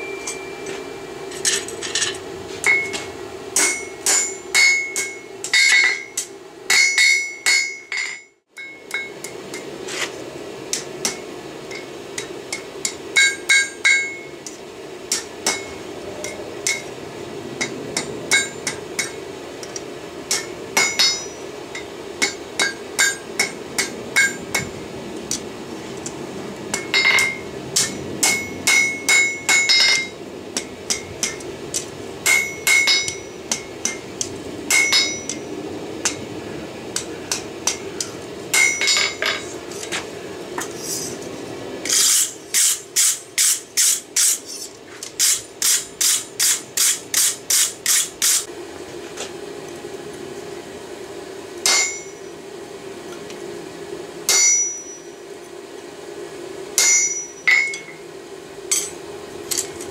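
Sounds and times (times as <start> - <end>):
hammer ringing on anvil: 0.0 - 1.6, 2.6 - 9.7, 11.0 - 14.4, 15.1 - 16.9, 17.6 - 19.2, 20.3 - 24.7, 26.7 - 31.4, 32.2 - 34.1, 34.7 - 36.2, 37.0 - 39.4, 51.6 - 52.3, 54.3 - 55.2, 56.8 - 58.0, 58.7 - 59.7
steady hum: 0.0 - 59.9.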